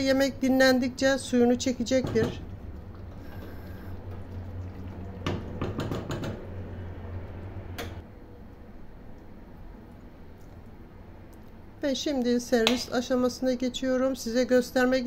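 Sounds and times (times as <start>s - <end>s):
steady low hum: 0.0s - 15.0s
spoon knocking against pot: 5.3s - 6.4s.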